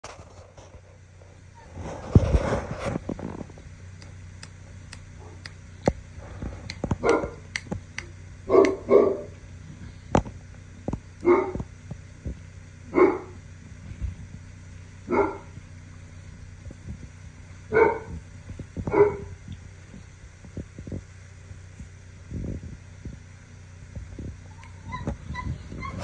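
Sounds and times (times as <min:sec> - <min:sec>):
puppy barking: 0:07.0 - 0:07.5, 0:08.5 - 0:09.4, 0:11.2 - 0:11.6, 0:12.9 - 0:13.4, 0:15.1 - 0:15.5, 0:17.7 - 0:18.2, 0:18.9 - 0:19.4, 0:24.6 - 0:26.0.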